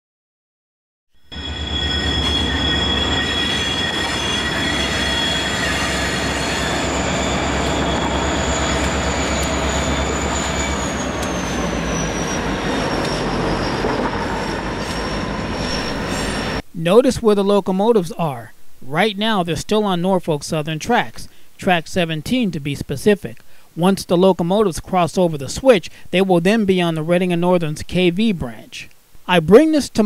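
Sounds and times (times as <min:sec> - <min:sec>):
train wheel squeal: 0:01.2 - 0:16.6
locomotive engine rumble: 0:01.4 - 0:16.6.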